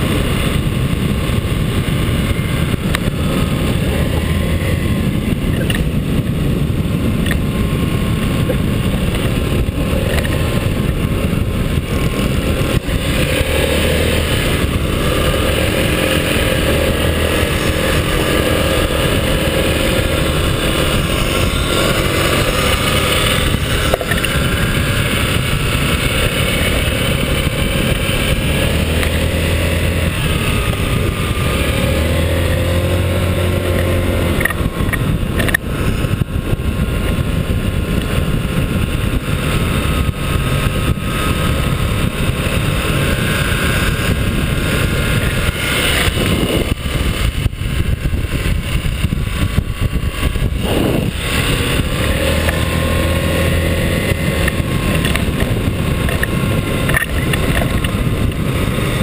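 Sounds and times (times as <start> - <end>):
small scooter engine running: 0.0 - 59.0
wind noise on camera: 0.0 - 59.0.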